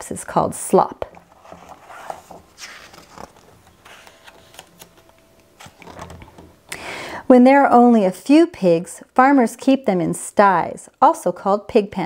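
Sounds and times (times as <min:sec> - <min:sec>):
paper page rustling: 0:01.1 - 0:06.5.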